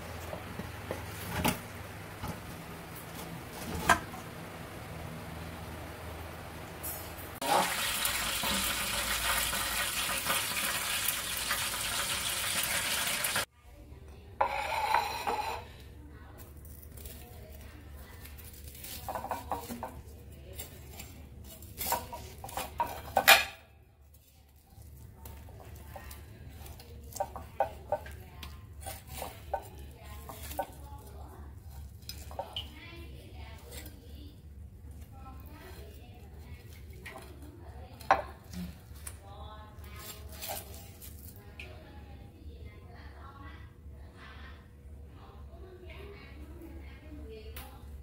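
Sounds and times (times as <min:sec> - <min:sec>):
tap water running into sink: 0:07.4 - 0:13.4.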